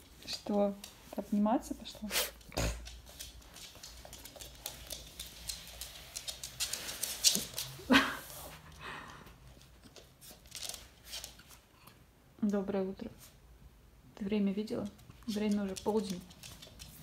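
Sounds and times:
dog rustling and clicking: 0.0 - 8.8, 9.5 - 11.6, 14.8 - 17.0.

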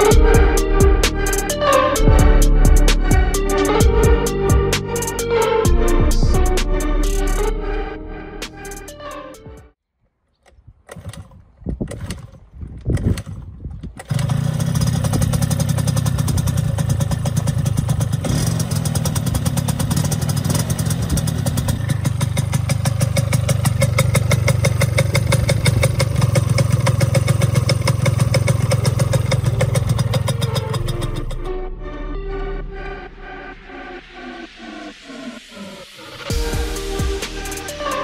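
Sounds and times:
scooter engine sputtering and idling: 10.9 - 31.4.

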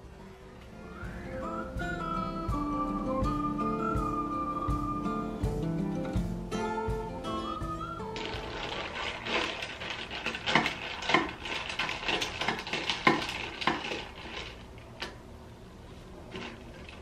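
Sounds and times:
soda fizzing: 8.2 - 14.8.

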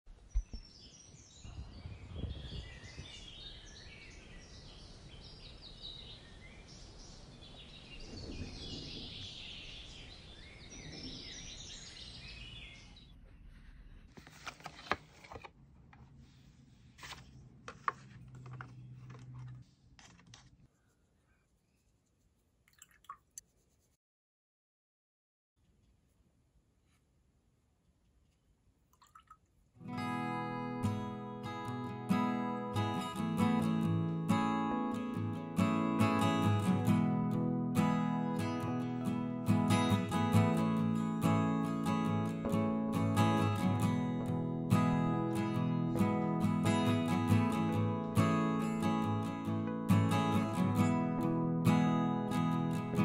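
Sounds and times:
birds chirping: 0.2 - 13.5.

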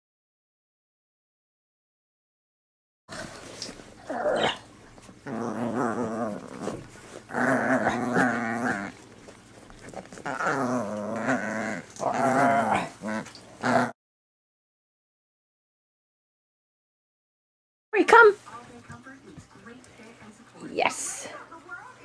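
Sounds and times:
dog growling in play: 3.1 - 14.0.

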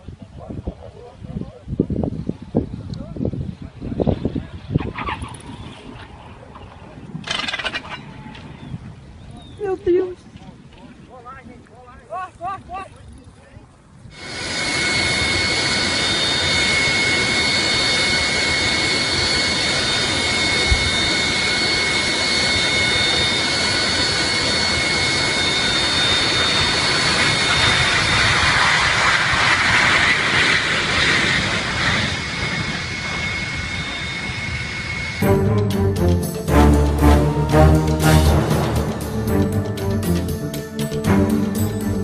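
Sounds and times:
jet engines rushing and whining: 13.8 - 42.0.

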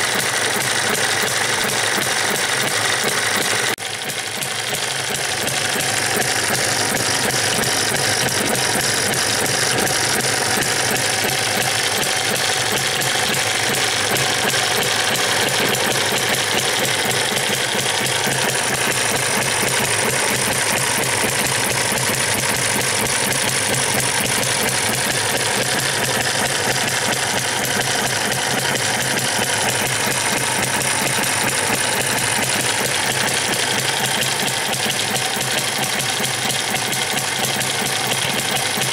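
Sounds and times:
model engine clattering: 0.0 - 38.9.

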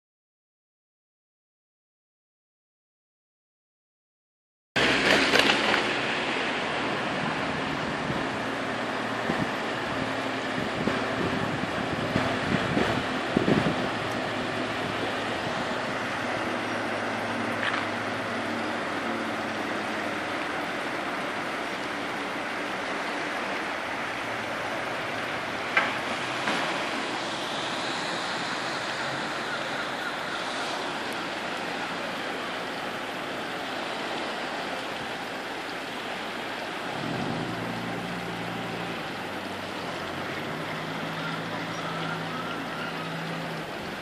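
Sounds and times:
boat engines running slowly: 4.8 - 44.0
heavy rain: 4.8 - 44.0
wind: 4.8 - 44.0.

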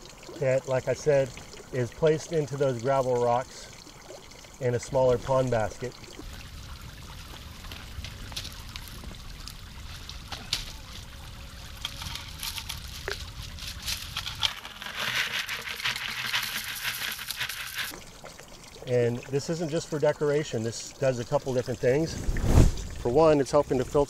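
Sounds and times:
fountain water splashing: 0.0 - 18.1
gravel rattling into plastic basket: 11.7 - 17.9.

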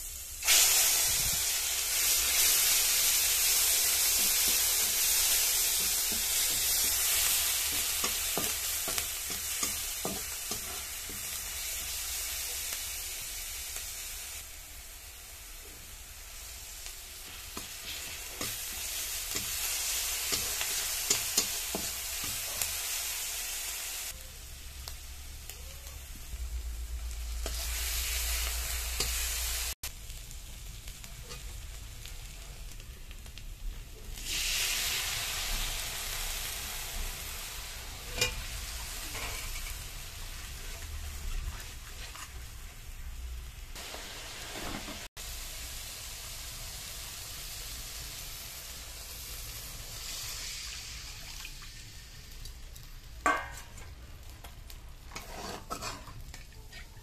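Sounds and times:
paste sizzling in hot oil: 0.0 - 57.0
metal spatula scraping pan: 39.1 - 39.9, 55.1 - 57.0.

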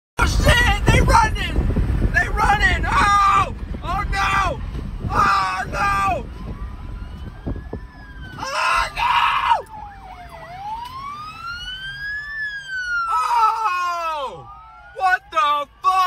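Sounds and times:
police sirens wailing: 2.2 - 16.0
harsh siren blasts: 5.0 - 16.0.

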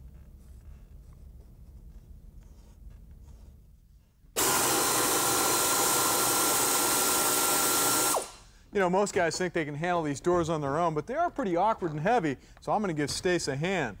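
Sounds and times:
low shop hum: 0.0 - 14.0
power wrench whining: 4.4 - 8.5.

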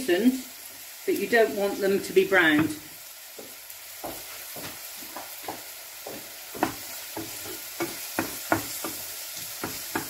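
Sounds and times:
onions sizzling in frying pan: 0.0 - 10.0
wooden spoon knocking against pan: 3.4 - 10.0.

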